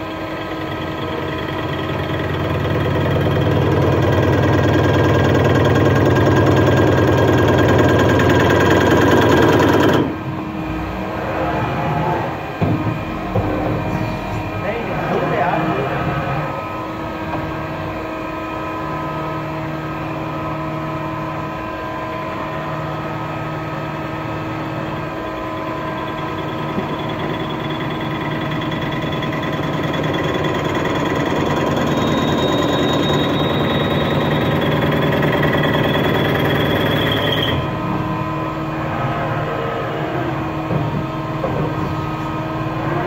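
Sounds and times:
lathe machine hum: 0:00.0 - 0:43.0
high whine: 0:09.9 - 0:19.7.

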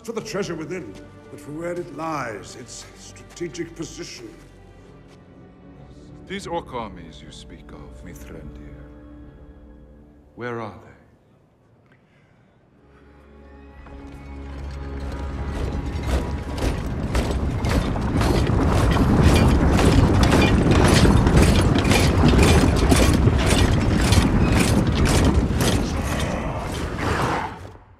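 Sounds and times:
marching footsteps tramping: 0:13.9 - 0:26.6
metal clanking: 0:15.0 - 0:27.0.

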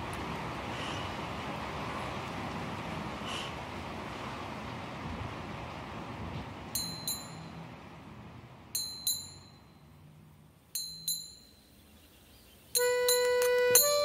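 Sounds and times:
small metal bell dinging: 0:06.8 - 0:07.6, 0:08.7 - 0:09.9, 0:10.7 - 0:11.8, 0:12.8 - 0:14.0.

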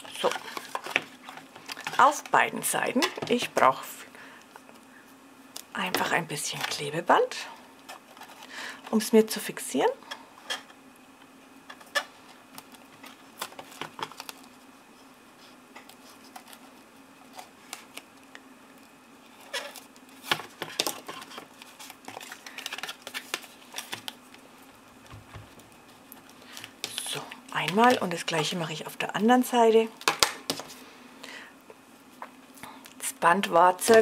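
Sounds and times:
paper rustling and crinkling: 0:00.0 - 0:03.5, 0:07.9 - 0:08.5, 0:11.9 - 0:14.7, 0:15.4 - 0:18.1, 0:19.2 - 0:24.4
faint steady hum: 0:00.0 - 0:34.0.

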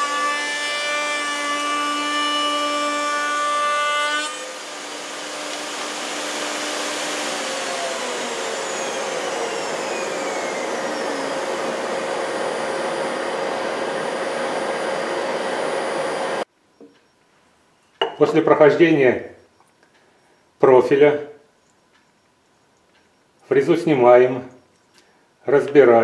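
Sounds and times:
router whine winding down: 0:04.3 - 0:16.5.

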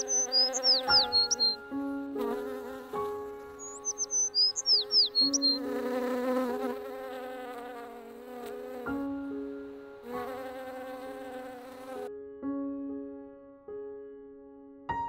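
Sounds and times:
high chirps: 0:00.0 - 0:01.6, 0:03.6 - 0:05.7.

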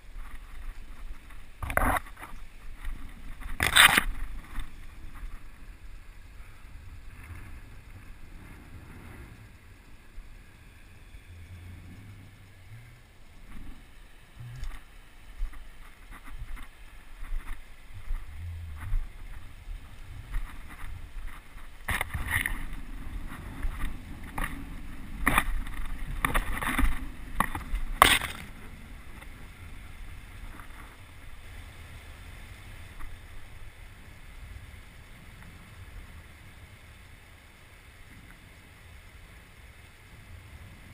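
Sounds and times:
wind rumble: 0:00.0 - 0:40.9
sharp clicks and cracks: 0:00.1 - 0:05.5, 0:20.3 - 0:29.3
microphone handling noise: 0:14.4 - 0:28.6.

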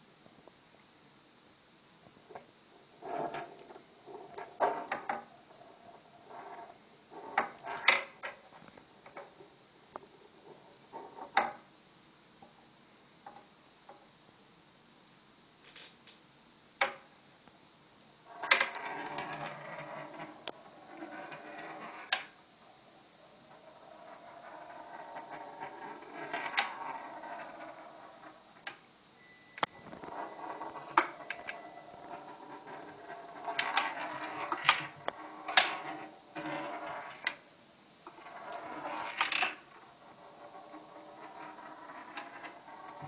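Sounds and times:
marble rolling in wooden tray: 0:02.3 - 0:11.7, 0:18.3 - 0:22.4, 0:23.2 - 0:28.8, 0:29.6 - 0:43.0.

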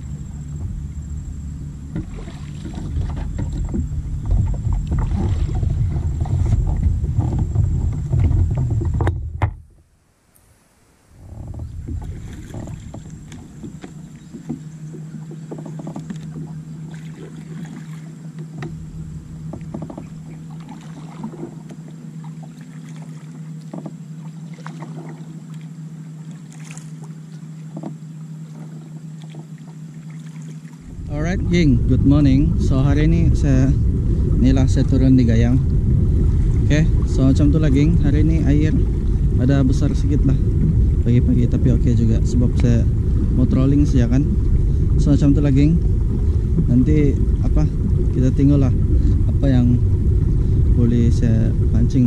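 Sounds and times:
paddle strokes splashing: 0:00.0 - 0:09.4, 0:10.7 - 0:52.0
low rumble of handling kayak: 0:00.0 - 0:52.0
knocks against kayak hull: 0:01.9 - 0:09.7, 0:11.3 - 0:17.8, 0:18.4 - 0:18.8, 0:19.5 - 0:21.8, 0:23.6 - 0:24.0, 0:27.6 - 0:29.5.

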